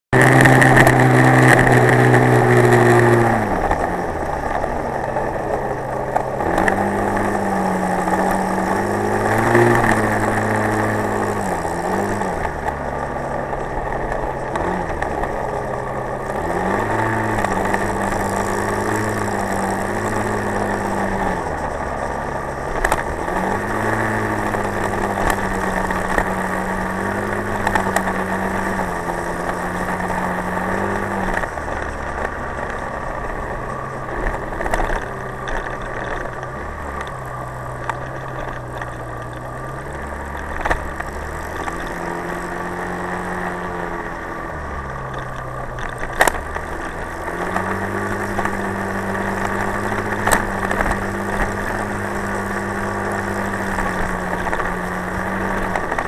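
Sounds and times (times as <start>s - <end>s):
motorcycle engine running: 0.1s - 56.0s
wind and road noise: 0.1s - 56.0s.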